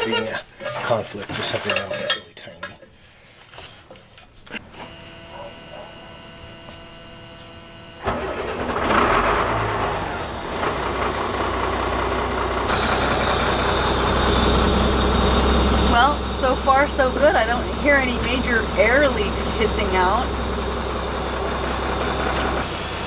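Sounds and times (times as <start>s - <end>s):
diesel engine starting and idling: 7.9s - 23.0s.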